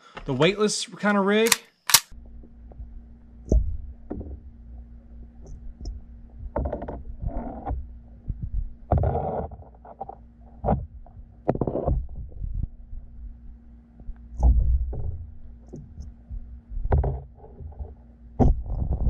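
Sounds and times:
faint steady hum: 0.0s - 19.0s
muffled underwater thumps and sloshes: 2.7s - 13.1s, 14.3s - 19.0s.

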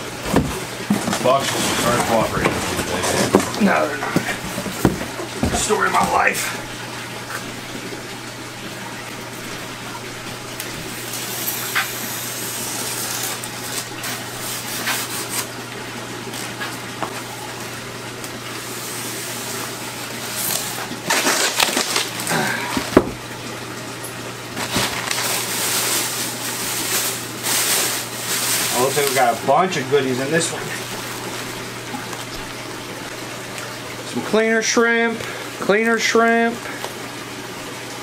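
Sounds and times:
styrofoam scraping and creaking: 0.2s - 5.6s, 12.6s - 15.5s, 20.3s - 22.4s, 24.6s - 29.4s.

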